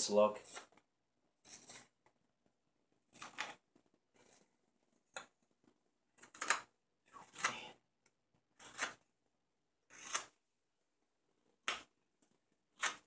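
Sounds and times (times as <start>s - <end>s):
knife slicing wood shavings: 9.9s - 10.3s.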